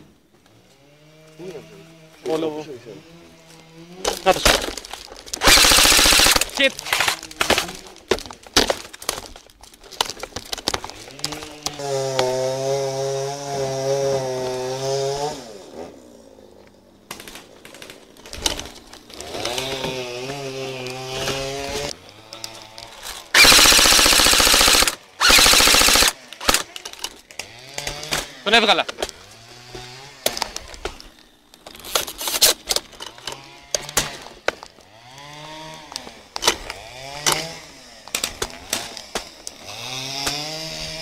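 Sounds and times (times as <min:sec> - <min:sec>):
scattered clicks: 0:05.2 - 0:07.2, 0:22.4 - 0:27.1
airsoft rifle full-auto bursts: 0:05.4 - 0:06.7, 0:23.3 - 0:26.7.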